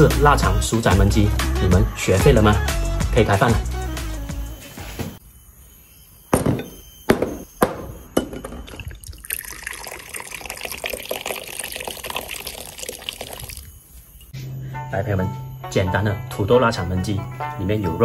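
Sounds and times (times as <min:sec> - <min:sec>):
liquor pouring into a glass: 0:08.7 - 0:13.7.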